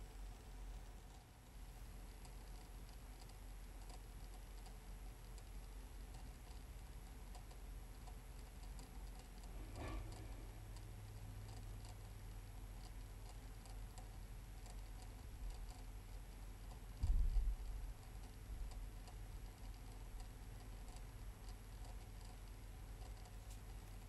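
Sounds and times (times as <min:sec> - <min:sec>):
turntable motor hum and ticking: 0:00.0 - 0:24.0.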